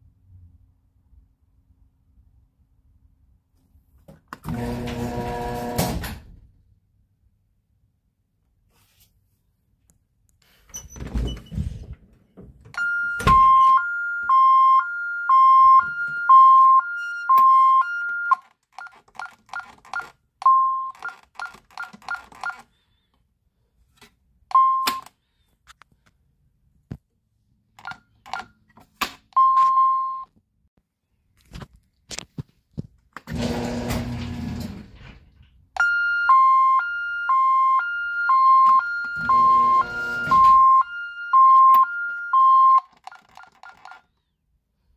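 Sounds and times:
long beep: 12.8s - 18.4s, 35.8s - 42.8s
two-tone alarm signal: 12.8s - 18.4s, 35.8s - 42.8s
short keypad beeps: 12.8s - 22.6s, 24.5s - 25.1s, 29.4s - 30.3s, 35.8s - 44.0s.

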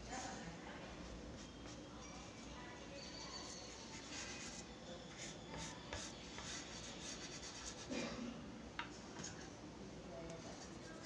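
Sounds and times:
charcoal scratching on paper: 3.4s - 7.9s, 10.6s - 11.0s.

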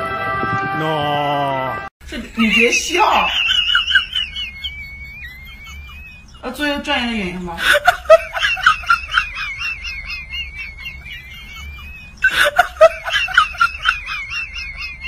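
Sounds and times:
high-pitched cackling laughter: 2.4s - 6.8s, 7.6s - 15.0s.

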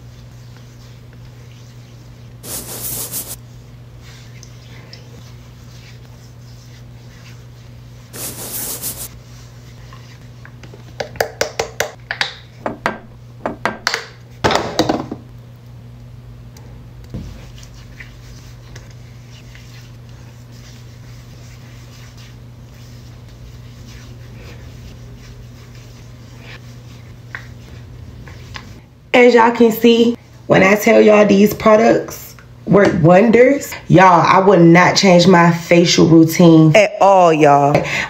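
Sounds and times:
steady low hum: 15.2s - 30.8s.

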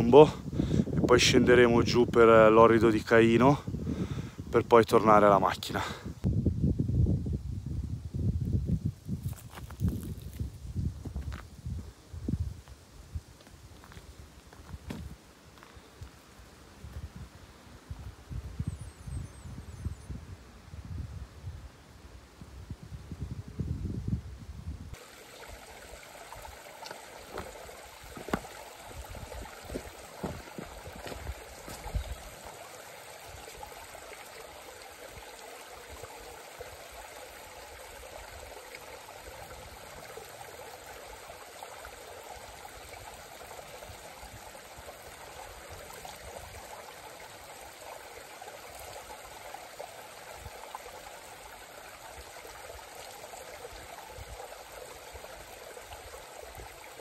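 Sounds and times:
stream trickling over rocks: 4.6s - 20.1s, 24.9s - 57.0s.

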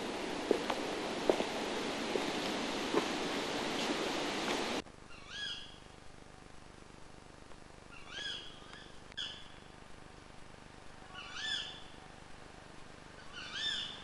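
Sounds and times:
owl calling: 3.5s - 6.0s, 7.9s - 9.6s, 11.1s - 12.0s, 13.2s - 14.0s.

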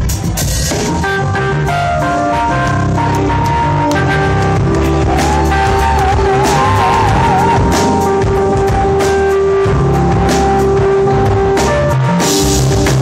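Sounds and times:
live band playing: 0.0s - 13.0s.

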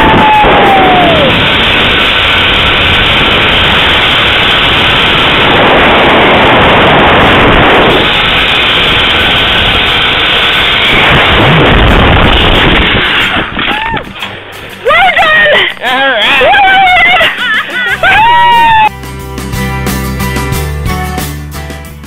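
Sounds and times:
wind rushing over microphone: 0.0s - 14.8s.

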